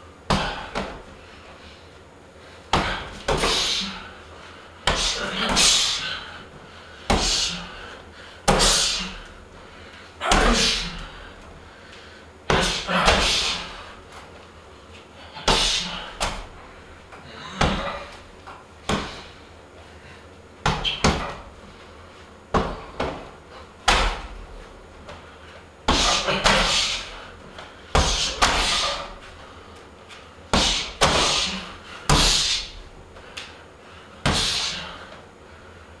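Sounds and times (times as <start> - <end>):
punches hitting heavy punching bag: 20.6 - 21.4, 23.8 - 24.4, 27.9 - 29.2, 30.5 - 32.7.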